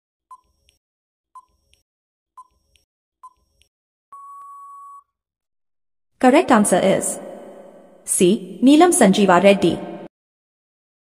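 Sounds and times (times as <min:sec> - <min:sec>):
long steady beep: 0:04.1 - 0:05.0.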